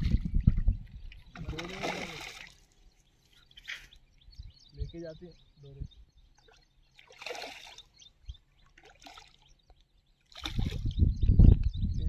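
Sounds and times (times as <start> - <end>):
fish splashing at water surface: 1.4 - 2.6, 7.0 - 7.9.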